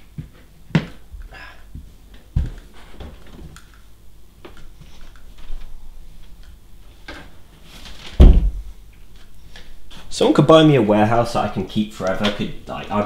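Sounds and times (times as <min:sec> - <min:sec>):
dull thump: 0:08.2 - 0:08.7.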